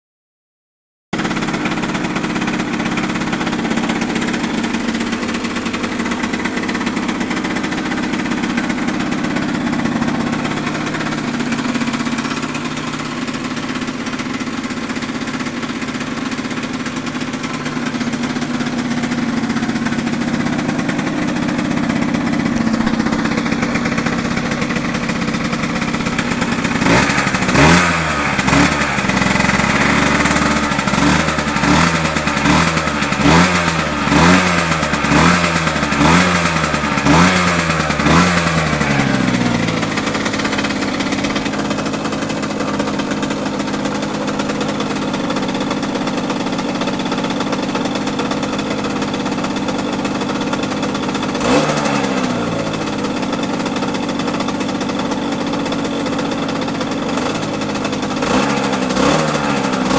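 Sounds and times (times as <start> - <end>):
two-stroke engine idling and revving: 1.2 - 59.9.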